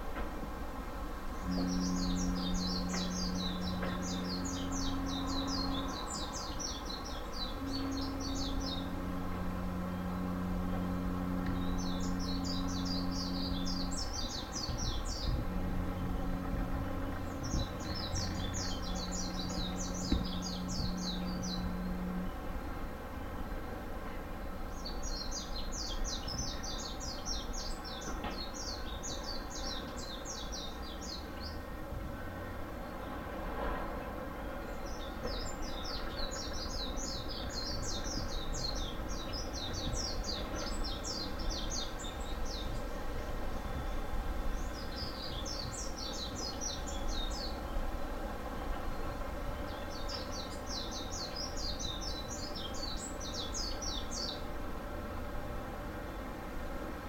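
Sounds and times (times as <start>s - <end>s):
low outdoor rumble: 0.0s - 57.0s.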